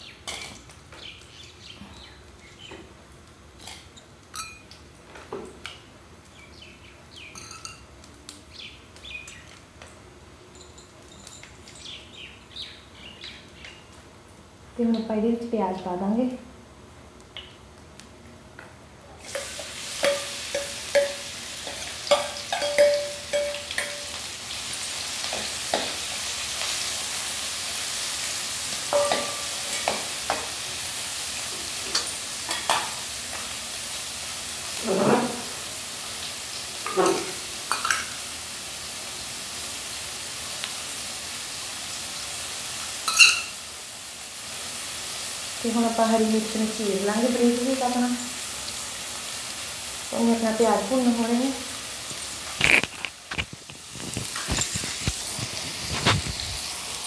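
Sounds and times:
onions sizzling in hot oil: 0:19.2 - 0:57.0
spoon scraping a pan: 0:19.3 - 0:24.2, 0:28.9 - 0:30.6, 0:34.8 - 0:35.5, 0:36.8 - 0:38.2, 0:43.0 - 0:43.6, 0:52.1 - 0:56.7.

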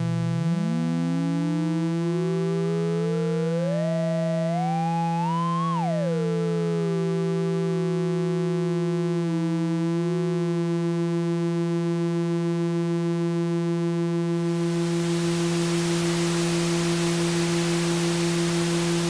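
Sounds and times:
steady oscillator tones: 0:14.1 - 0:19.0
white noise hiss: 0:14.4 - 0:19.0.

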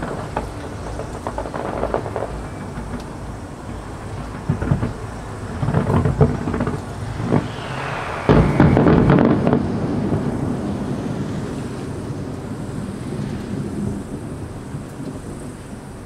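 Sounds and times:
fireworks booming and crackling: 0:00.0 - 0:11.2
faint falling whistle: 0:06.6 - 0:11.4.

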